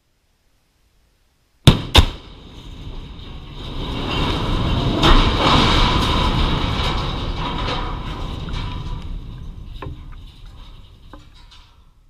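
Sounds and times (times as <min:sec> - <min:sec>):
sharp explosive blasts: 0:01.6 - 0:06.6
heavy crash on ground: 0:01.7 - 0:11.9
rumble of falling steel boom: 0:01.7 - 0:12.0.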